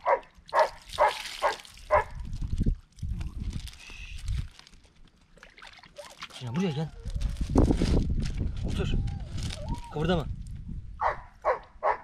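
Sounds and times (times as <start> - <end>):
dog barking: 0.0 - 2.2, 11.0 - 12.0.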